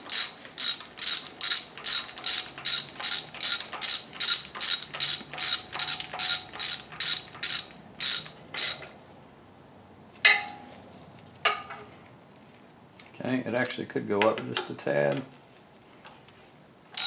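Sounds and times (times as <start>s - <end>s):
hand ratchet clicking: 0.0s - 8.9s.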